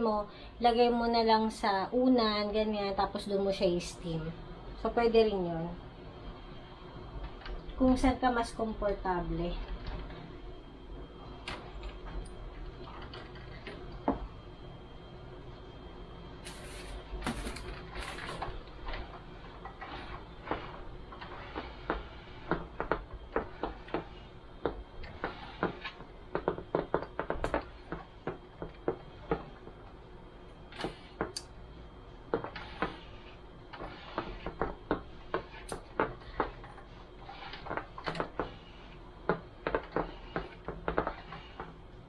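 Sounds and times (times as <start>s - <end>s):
garment steamer hissing: 16.4s - 29.4s, 32.3s - 42.0s.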